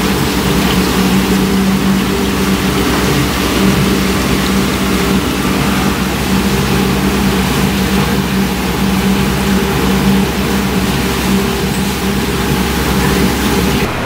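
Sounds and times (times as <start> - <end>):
constant hiss: 0.0 - 14.0
engine drone: 0.0 - 14.0.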